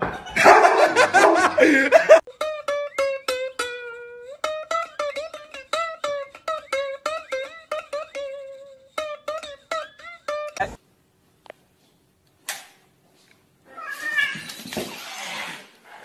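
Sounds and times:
plucked string melody: 2.3s - 10.8s.

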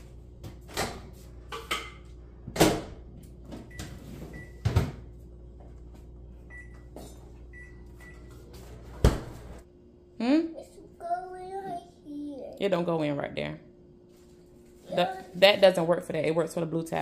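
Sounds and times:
microwave keypad beeps: 3.7s - 4.6s, 6.5s - 6.9s, 7.5s - 8.3s.

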